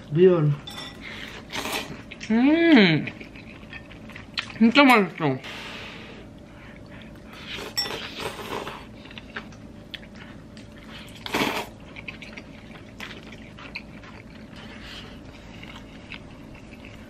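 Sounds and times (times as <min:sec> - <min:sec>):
person slurping noodles: 0:01.5 - 0:01.9, 0:07.6 - 0:08.9, 0:11.2 - 0:11.8
chewing with wet mouth clicks: 0:03.0 - 0:05.0, 0:09.0 - 0:17.0.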